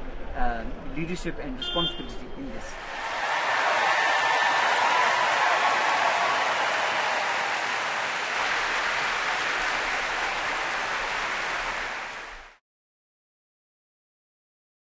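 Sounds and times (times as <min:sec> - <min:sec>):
audience applauding: 0:02.8 - 0:12.6.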